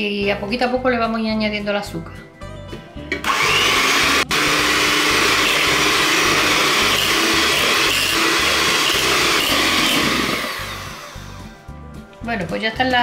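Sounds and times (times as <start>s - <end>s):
electric hand mixer whipping: 3.2s - 11.5s.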